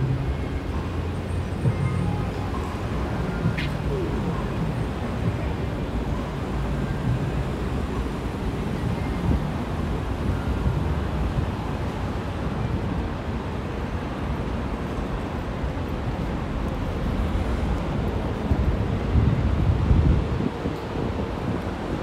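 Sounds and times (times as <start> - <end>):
traffic hum: 0.0 - 22.0
wind buffeting microphone: 17.0 - 22.0.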